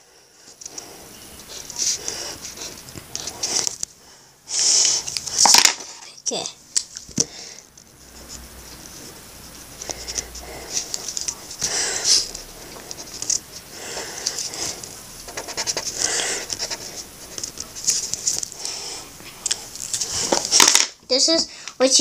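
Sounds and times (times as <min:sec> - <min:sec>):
marker scratching on paper: 0:00.6 - 0:03.8, 0:08.0 - 0:18.5.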